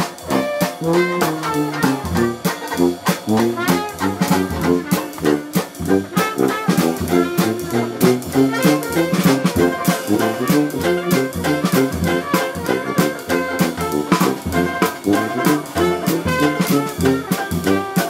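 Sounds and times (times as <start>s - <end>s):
dixieland jazz band playing: 0.0s - 18.0s.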